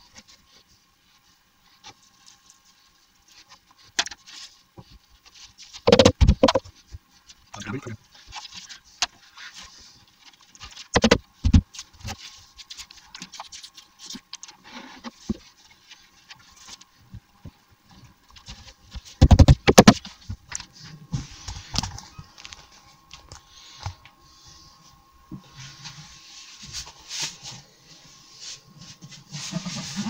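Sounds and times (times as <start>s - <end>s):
wooden panels knocking: 5.9s - 6.6s.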